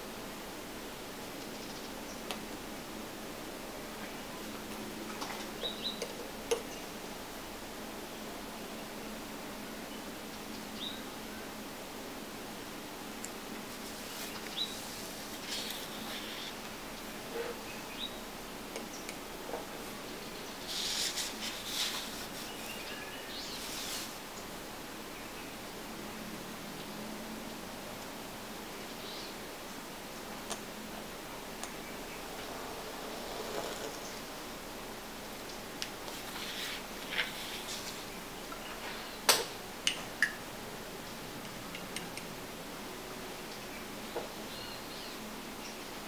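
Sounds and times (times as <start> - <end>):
faint steady hiss: 0.0 - 46.0
hand rustling on paper: 20.6 - 22.8
paper sliding and rustling: 20.6 - 22.8, 23.5 - 24.2, 32.4 - 34.3, 36.0 - 38.1.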